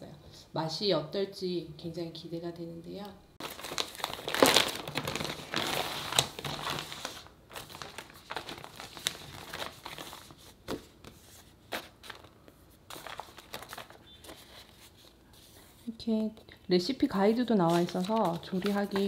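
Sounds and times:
plastic packaging crinkling: 3.4 - 10.8, 11.7 - 15.2, 17.4 - 19.0.

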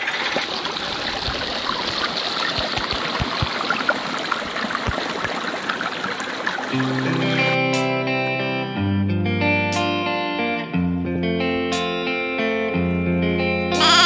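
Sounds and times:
guitar music: 6.8 - 14.0.

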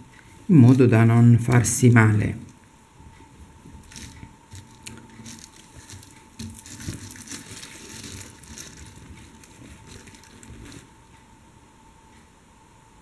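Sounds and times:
beads clicking and rustling: 3.6 - 10.9.

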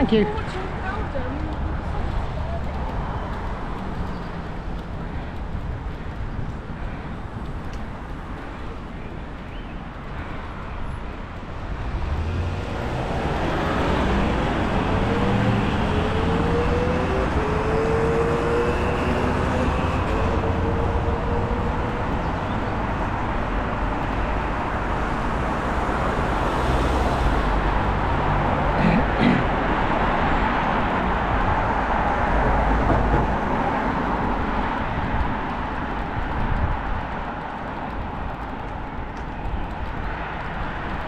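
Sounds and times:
wind rumbling on microphone: 0.0 - 28.8, 29.4 - 41.0
road traffic passing close: 0.0 - 41.0
vehicle engine speeding up: 11.9 - 22.2.

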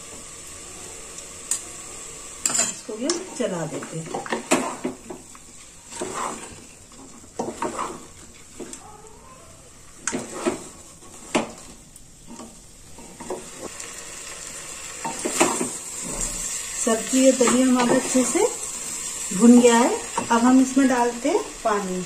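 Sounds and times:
faint sizzle: 0.0 - 22.0
wooden spatula scraping pot: 3.1 - 8.8, 9.9 - 13.7.

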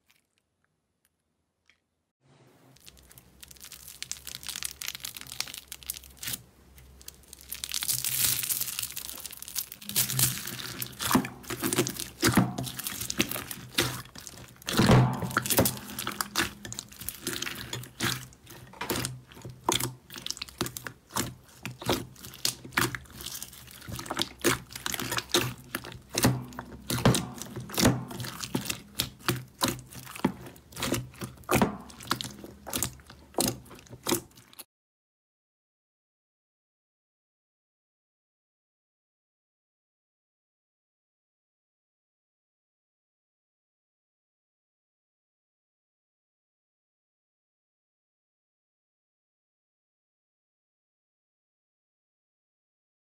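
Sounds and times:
slime squeezed by hand: 2.7 - 6.4, 7.0 - 34.6.

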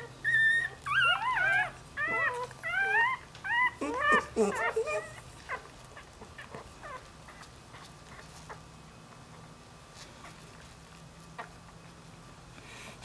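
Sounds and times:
puppy squeak: 0.0 - 5.6.

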